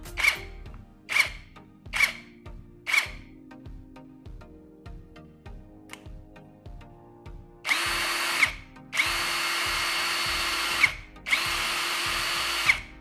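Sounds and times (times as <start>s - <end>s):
impact wrench motor whining: 7.7s - 12.9s.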